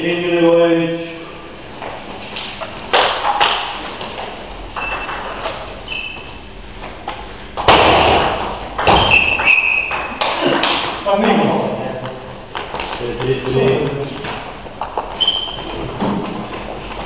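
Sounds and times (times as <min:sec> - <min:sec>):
table tennis ball hits: 0:02.9 - 0:03.8, 0:07.6 - 0:11.0
thud: 0:07.6 - 0:09.3.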